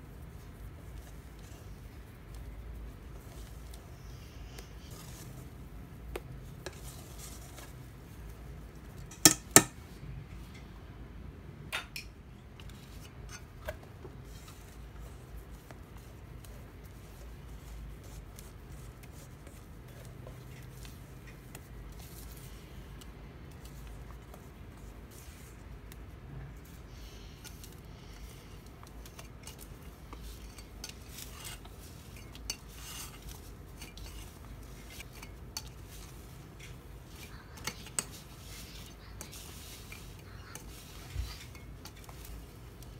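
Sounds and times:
whisk scraping a metal bowl: 6.6 - 7.9, 27.4 - 42.9.

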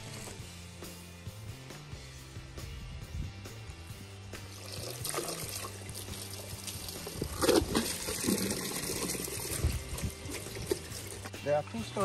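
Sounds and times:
water pouring and splashing: 4.5 - 11.3.

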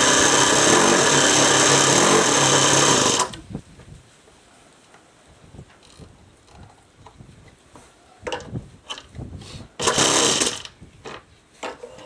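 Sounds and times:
electric starter whirring: 0.0 - 3.4, 9.8 - 10.8.

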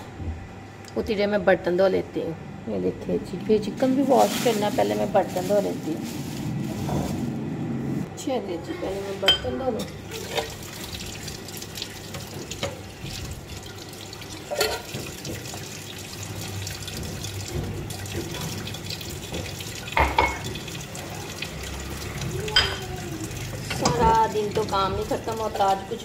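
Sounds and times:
water running in a sink: 8.8 - 26.0
glassware and dishes clinking: 14.5 - 14.9, 20.0 - 20.5, 22.5 - 22.9.

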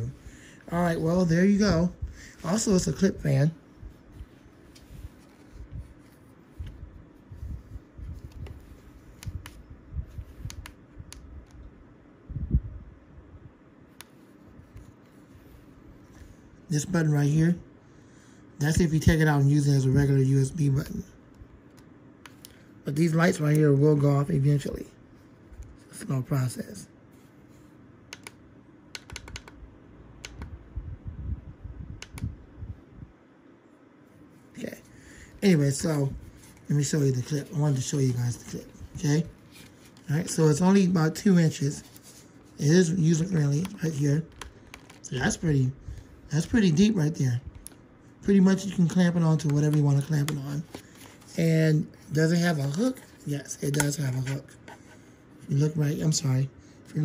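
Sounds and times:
sharp plastic clicks: 28.1 - 29.6.

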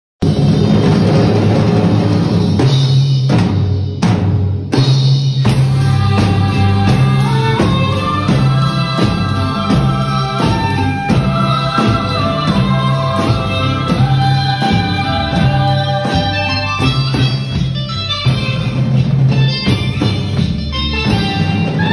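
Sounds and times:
drum kits playing a beat: 0.2 - 21.9
backing music with melody: 4.8 - 21.9.

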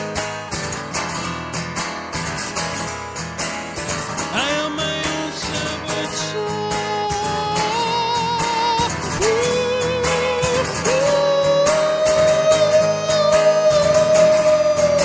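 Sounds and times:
acoustic guitar: 0.0 - 15.0
person singing long notes: 4.4 - 15.0.

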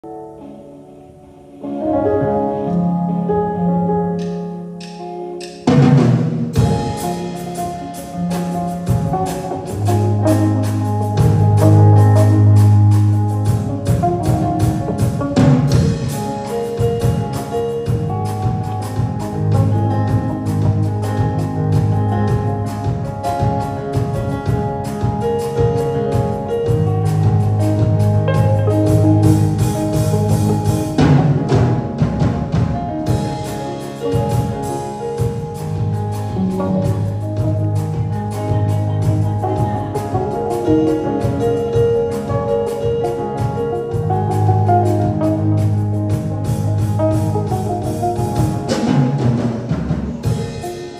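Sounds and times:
keyboard chords: 0.0 - 50.9
electric guitar: 0.1 - 50.9
steady drum beat: 4.2 - 50.9
deep bass notes: 18.1 - 50.7.

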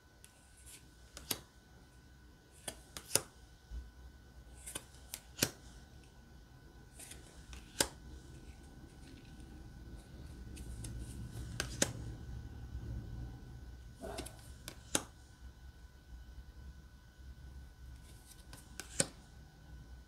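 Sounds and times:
playing cards snapping: 0.6 - 1.5, 2.6 - 3.3, 4.6 - 5.6, 7.0 - 8.0, 10.5 - 12.0, 14.0 - 15.1, 18.3 - 19.2.

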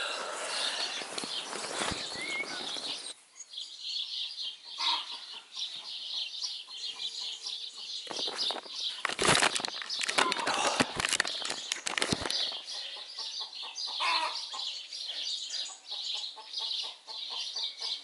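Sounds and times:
small birds singing: 0.0 - 18.0
sleeping bag rustling: 0.5 - 3.1, 8.2 - 12.5
chickens clucking: 4.4 - 9.0, 12.2 - 18.0
handling noise: 8.1 - 12.5.

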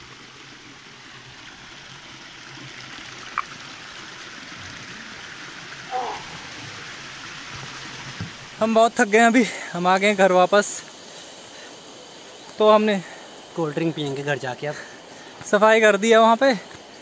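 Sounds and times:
water trickling over stones: 0.0 - 14.4
short call: 5.9 - 6.9.

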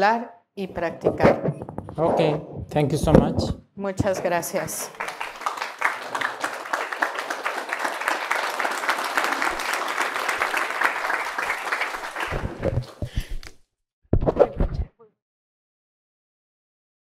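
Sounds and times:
thumps and rustles on microphone: 0.8 - 4.8
audience applauding: 4.3 - 13.1.

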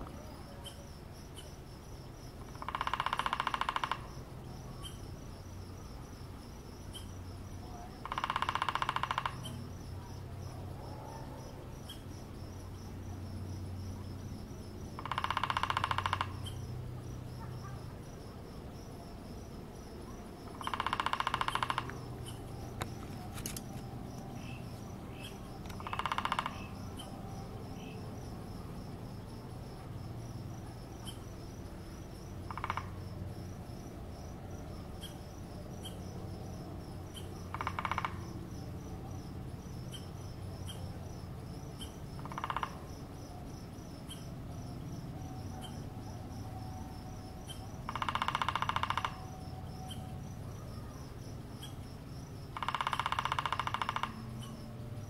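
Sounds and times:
insects chirring: 0.0 - 55.0
woodpecker drumming on tree: 2.4 - 5.1, 7.8 - 9.9, 14.8 - 16.8, 20.1 - 28.2, 32.3 - 33.2, 37.1 - 38.6, 41.5 - 42.9, 47.1 - 50.2, 51.6 - 54.8.

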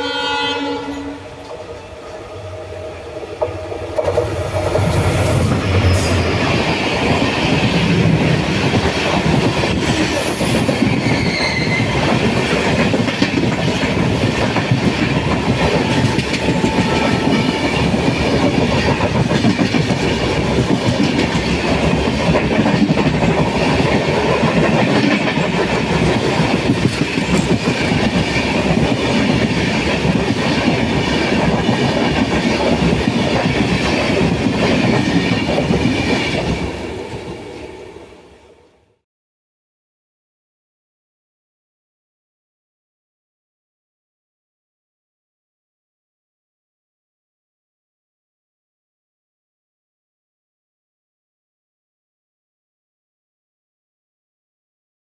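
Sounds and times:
locomotive horn: 0.0 - 1.4, 15.7 - 17.9
train wheels clattering over rail joints: 17.8 - 36.6.

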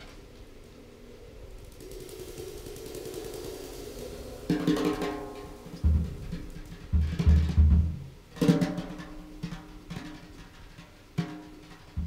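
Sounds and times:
drum kit played sparsely: 4.5 - 10.2.

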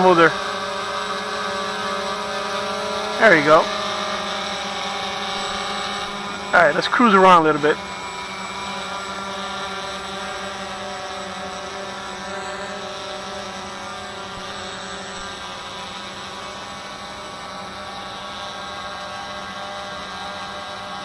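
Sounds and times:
quadcopter propellers humming: 0.0 - 21.0.

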